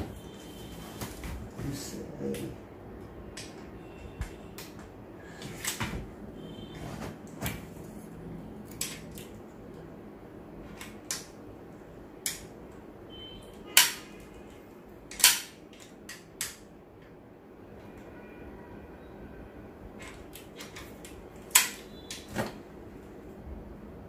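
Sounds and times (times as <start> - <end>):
rifle parts clicking and clacking: 15.1 - 16.6.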